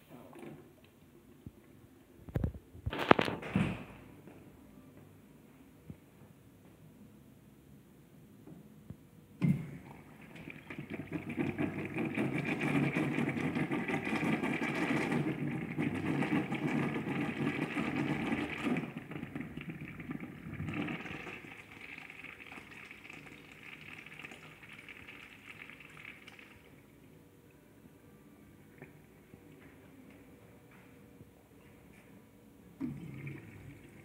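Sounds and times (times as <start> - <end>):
water rushing through urinal: 9.8 - 26.9, 32.8 - 34.0.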